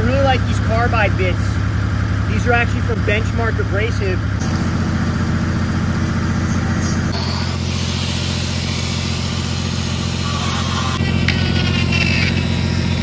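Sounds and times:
engine running: 0.0s - 13.0s
die grinder grinding steel: 7.1s - 13.0s.

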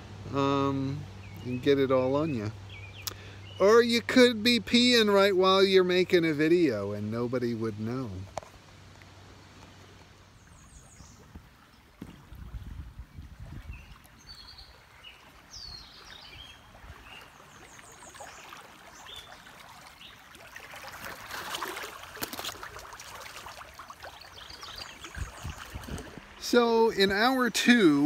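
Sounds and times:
river water splashing over rocks: 8.4s - 28.0s.

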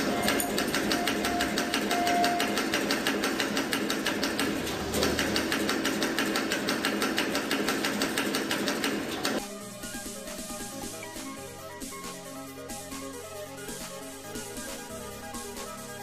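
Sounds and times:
wire bending machine clicking: 0.0s - 9.4s.

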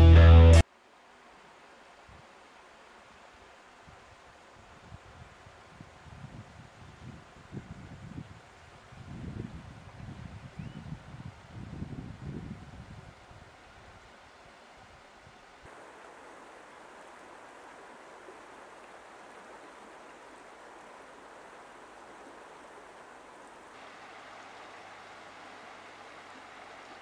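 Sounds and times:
river water flowing over stones: 0.6s - 4.8s, 13.4s - 27.0s.

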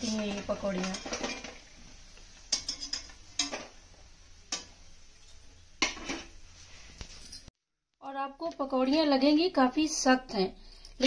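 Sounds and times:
metal spoon clinking on cookware: 2.5s - 3.7s.

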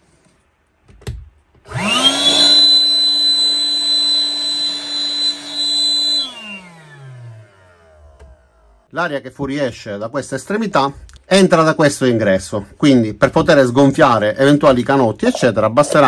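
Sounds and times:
pump fan motor whining: 1.7s - 8.8s.

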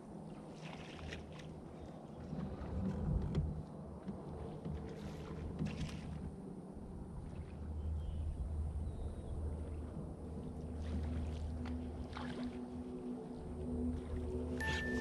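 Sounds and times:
wind and water rumble: 0.0s - 15.0s
low steady hum: 6.7s - 15.0s.

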